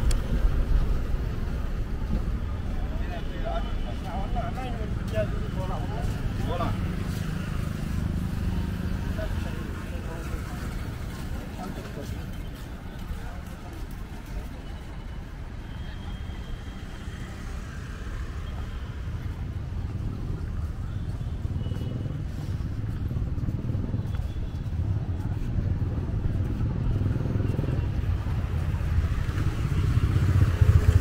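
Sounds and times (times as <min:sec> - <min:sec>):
road traffic: 0:00.0 - 0:31.0
motorbike engine rumble: 0:19.1 - 0:31.0.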